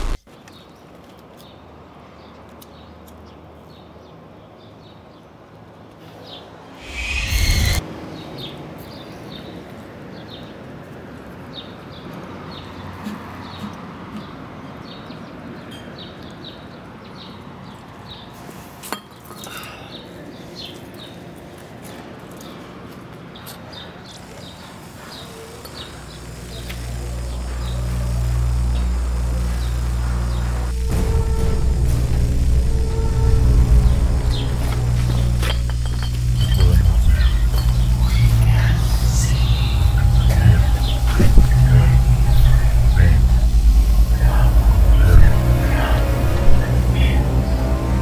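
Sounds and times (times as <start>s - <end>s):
deep musical drone: 0.0s - 0.2s, 6.8s - 7.8s, 24.2s - 48.0s
small birds chirping: 23.4s - 30.9s, 33.8s - 46.2s.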